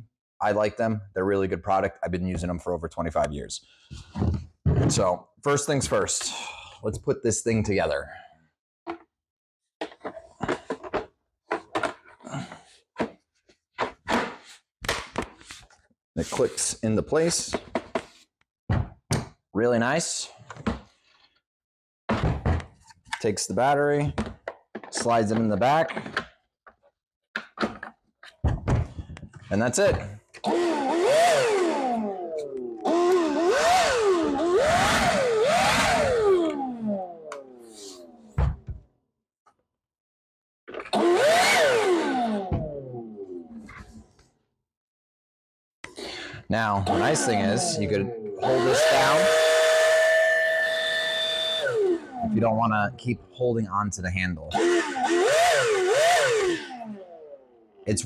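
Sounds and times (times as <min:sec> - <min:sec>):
plastic parts knocking and clicking: 0:09.8 - 0:13.2, 0:24.1 - 0:30.2
leaf blower motor whine: 0:30.4 - 0:37.5, 0:41.0 - 0:43.5, 0:46.9 - 0:52.4, 0:54.6 - 0:57.4.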